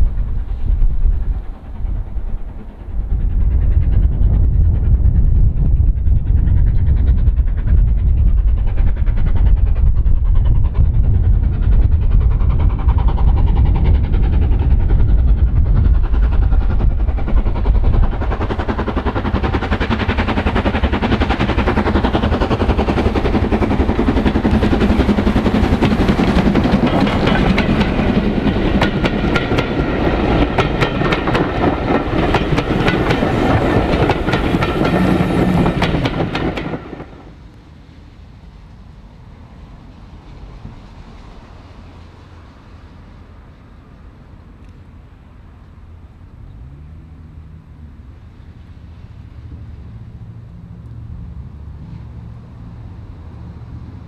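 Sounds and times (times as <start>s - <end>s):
train wheels clickety-clack: 0.0s - 37.5s
steam locomotive rumble: 0.0s - 54.0s.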